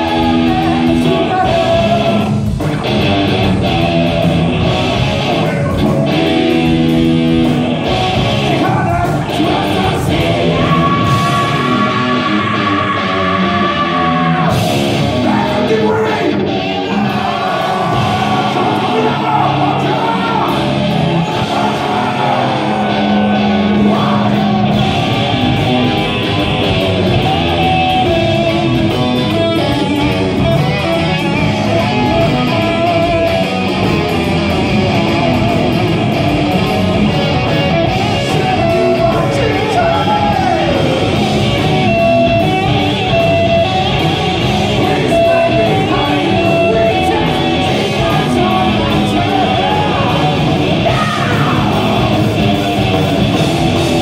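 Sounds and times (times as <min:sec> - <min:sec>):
person singing: 0:00.0 - 0:02.4, 0:08.4 - 0:24.9, 0:37.9 - 0:43.8, 0:44.6 - 0:52.5
bass guitar: 0:00.0 - 0:54.0
distorted electric guitars: 0:00.0 - 0:54.0
drums: 0:00.0 - 0:54.0.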